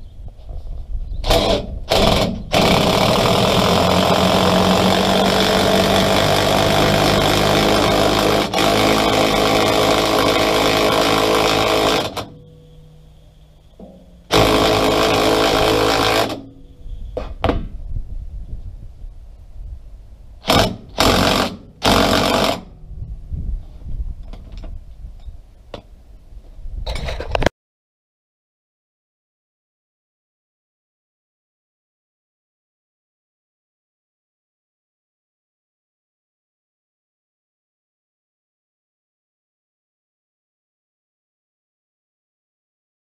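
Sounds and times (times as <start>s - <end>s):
impact driver hammering: 1.3s - 12.5s, 13.8s - 16.6s, 20.4s - 22.7s.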